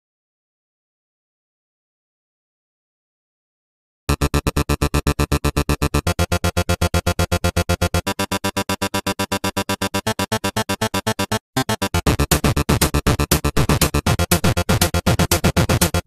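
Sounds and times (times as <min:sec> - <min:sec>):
electronic dance music: 0:04.1 - 0:16.0.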